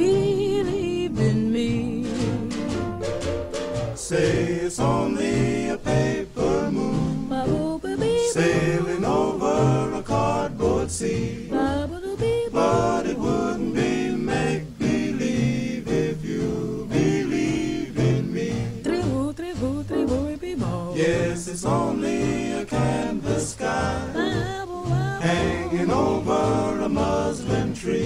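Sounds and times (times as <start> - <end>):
song with singing voice: 0.0 - 3.0, 3.7 - 28.0
steady bass line: 8.5 - 28.0.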